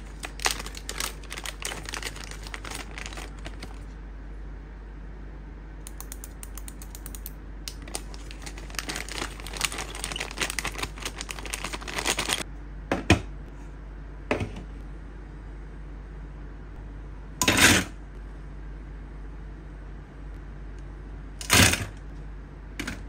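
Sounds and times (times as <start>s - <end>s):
plastic packet crinkling: 0.0s - 3.9s, 7.7s - 12.4s
plastic rustle: 0.0s - 3.9s, 7.8s - 12.4s.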